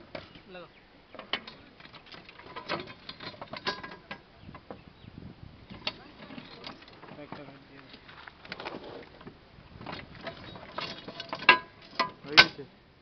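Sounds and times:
metal clamp clicks and knocks: 1.2 - 4.7, 9.9 - 12.6.

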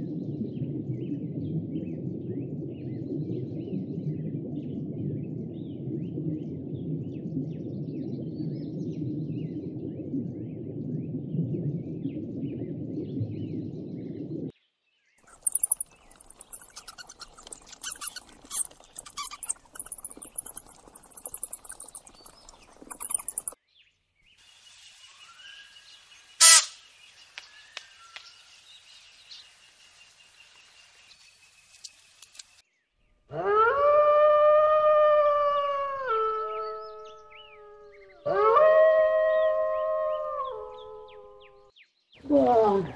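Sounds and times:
faint animal calls: 15.3 - 23.6
sharp squeal: 26.4 - 26.8
rapid clicks and hiss: 26.4 - 32.6
jackal howling: 33.3 - 41.3.

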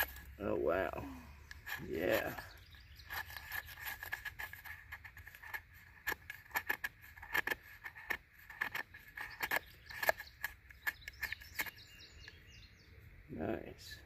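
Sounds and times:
knife scraping wood: 0.0 - 0.4, 1.4 - 12.0.

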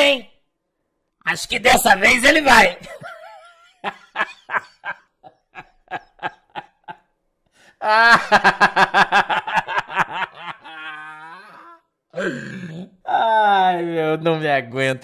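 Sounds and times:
man laughing: 2.8 - 7.0, 7.8 - 11.8.

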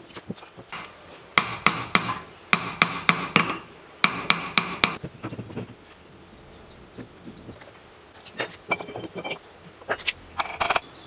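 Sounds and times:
hammer tapping metal: 1.4 - 5.0.

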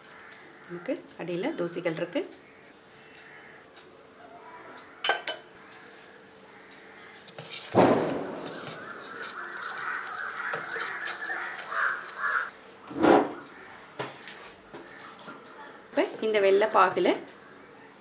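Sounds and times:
spatula stirring syrup in pot: 6.7 - 7.7, 8.4 - 12.5.

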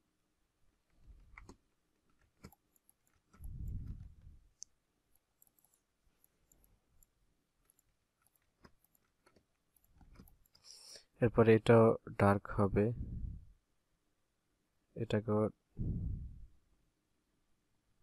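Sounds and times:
computer mouse clicks: 0.9 - 10.8.

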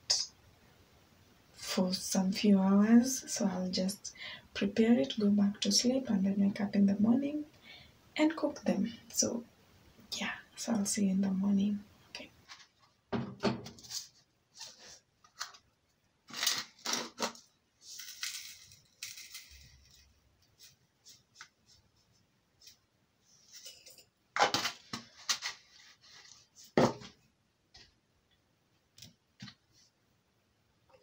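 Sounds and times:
granules pouring: 16.3 - 20.1.

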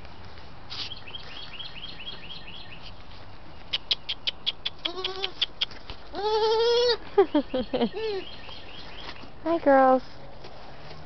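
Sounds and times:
bird chirping: 0.9 - 5.8, 7.3 - 9.3
goat kid bleating: 4.8 - 5.4, 6.1 - 7.0.

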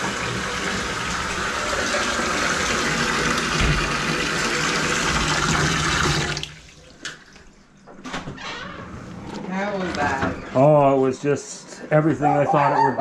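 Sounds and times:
faucet water running into basin: 0.0 - 7.4.

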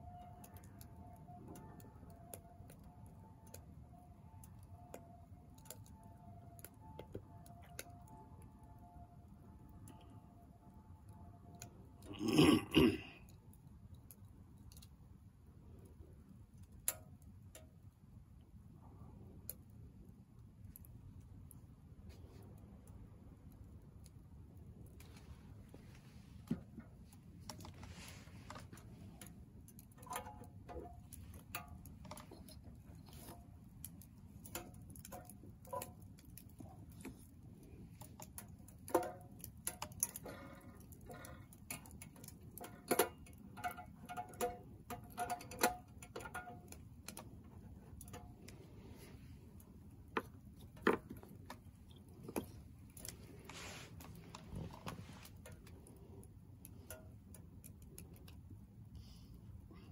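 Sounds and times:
firewood crackling and popping: 0.0 - 12.2, 13.2 - 58.6.

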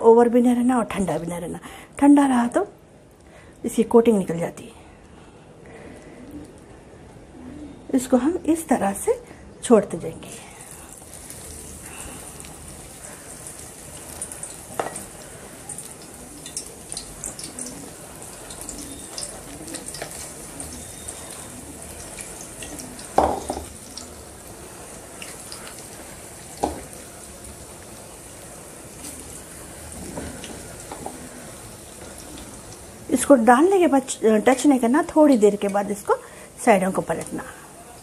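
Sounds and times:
pakoras sizzling in hot oil: 8.0 - 38.0
batter knocking into oil: 23.2 - 23.7.

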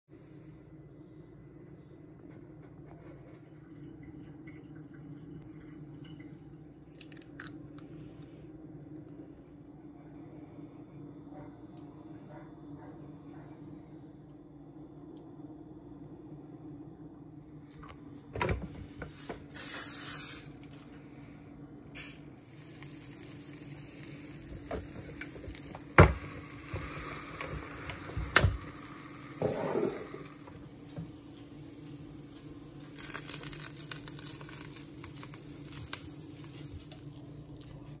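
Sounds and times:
low steady hum: 0.1 - 38.0
cooking spray hissing: 19.0 - 20.6, 22.0 - 37.2.

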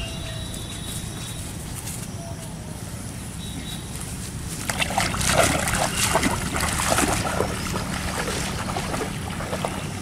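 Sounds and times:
wading splashes in water: 4.6 - 10.0.

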